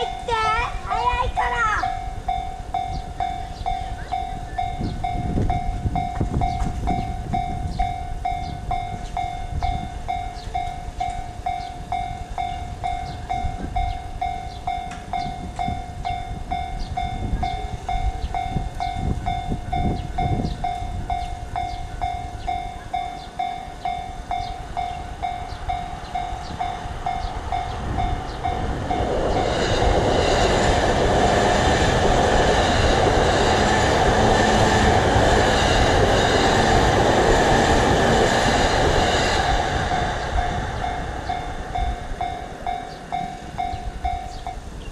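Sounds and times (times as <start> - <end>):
level crossing bell ringing: 0.0 - 29.1, 40.0 - 44.8
electric train passing: 0.0 - 44.9.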